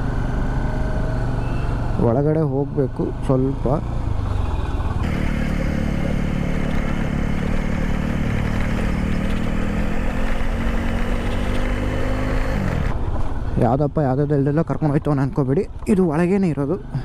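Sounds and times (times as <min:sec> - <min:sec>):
motorcycle engine running: 0:00.0 - 0:13.6
tyres on gravel: 0:05.0 - 0:13.4.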